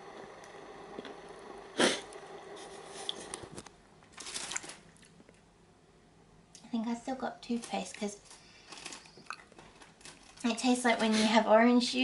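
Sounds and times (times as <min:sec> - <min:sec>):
packaging rustling: 0:03.3 - 0:05.2, 0:07.6 - 0:10.6.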